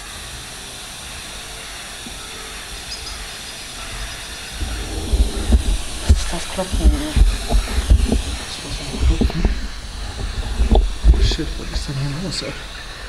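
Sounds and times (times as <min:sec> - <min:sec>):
radio static hiss: 0:00.0 - 0:13.0
low thuds and rumble: 0:04.6 - 0:11.9.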